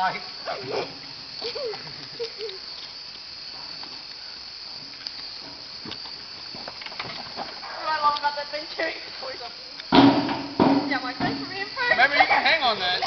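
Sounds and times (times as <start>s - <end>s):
steady high hiss: 0.0s - 13.0s
knocks on wooden structure: 9.9s - 11.4s.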